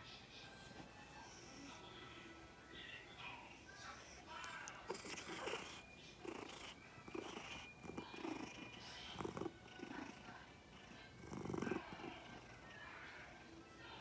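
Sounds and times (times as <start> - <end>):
cat purring: 3.3 - 13.5.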